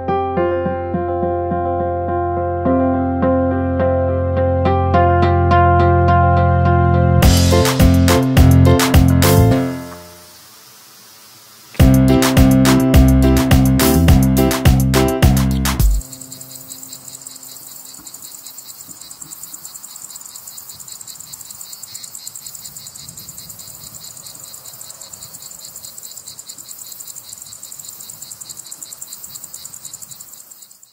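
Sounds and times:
music: 0.0 - 10.3, 11.8 - 17.1
insects chirping: 9.9 - 11.8, 15.0 - 30.9.

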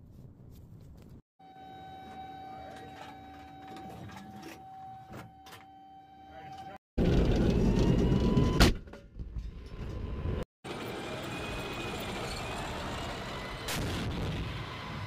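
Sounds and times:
faint high engine whine: 1.4 - 6.8
tank engine rumbling: 9.5 - 15.0.

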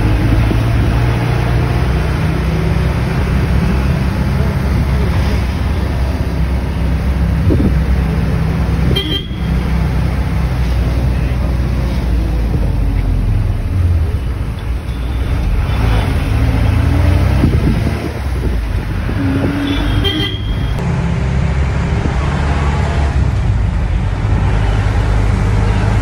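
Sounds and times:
bus engine and road rumble: 0.0 - 26.0
vehicle horn toot: 8.9 - 9.6, 19.6 - 20.8.

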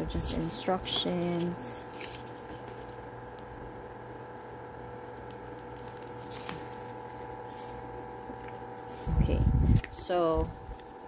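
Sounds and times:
steady low hum: 0.0 - 11.0
faint handling noises: 0.1 - 3.5.

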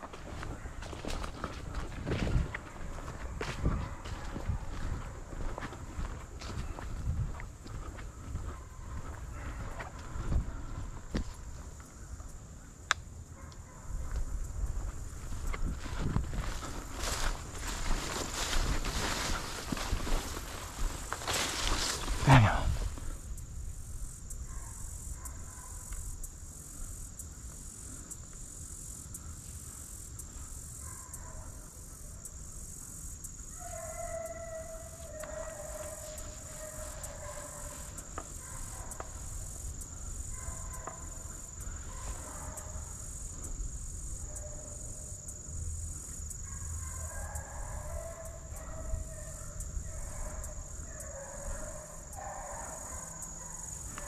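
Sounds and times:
insects buzzing: 0.0 - 54.0
hounds baying: 0.1 - 11.6, 30.6 - 32.5, 33.4 - 45.3, 46.1 - 54.0.

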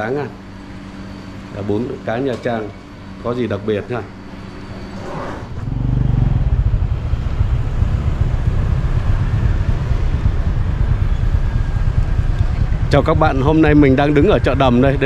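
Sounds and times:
motorbikes and cars passing: 4.3 - 15.0
wind rumble on microphone: 5.7 - 15.0.

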